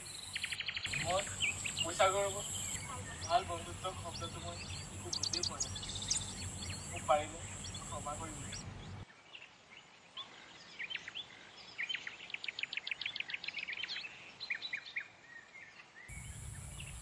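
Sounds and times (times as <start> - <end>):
birds chirping: 0.0 - 9.1, 16.1 - 17.0
fast repeated high chirps: 0.4 - 9.0.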